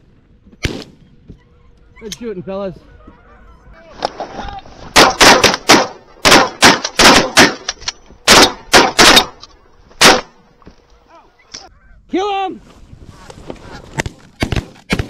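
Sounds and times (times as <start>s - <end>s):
shotgun blasts: 0.6s - 1.0s, 4.9s - 9.4s, 10.0s - 10.4s.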